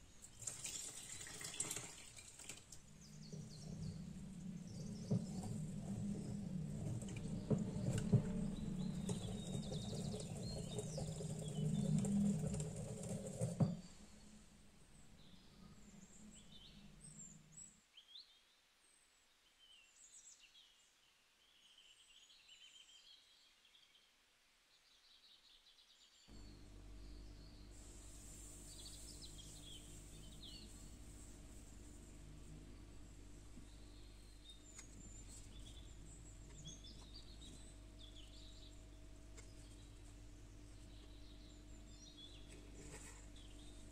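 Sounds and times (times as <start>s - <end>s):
steady low hum: 2.7s - 17.8s, 26.3s - 43.9s.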